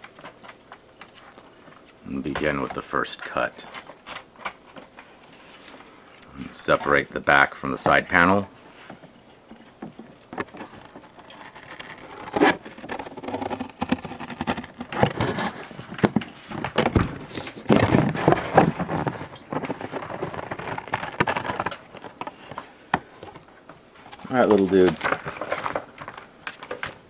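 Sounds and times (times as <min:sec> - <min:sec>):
cardboard creaking and rustling: 0:00.0 - 0:08.2, 0:08.8 - 0:27.0
cardboard box being cut: 0:11.0 - 0:15.7.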